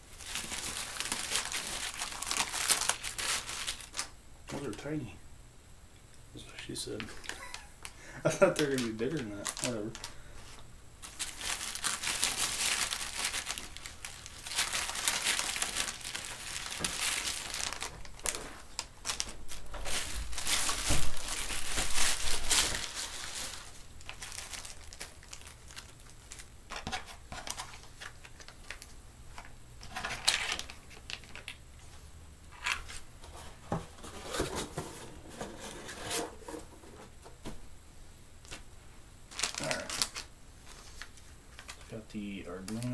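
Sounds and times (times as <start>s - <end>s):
plastic bags crinkling: 0.0s - 4.8s, 6.9s - 31.6s, 39.3s - 42.9s.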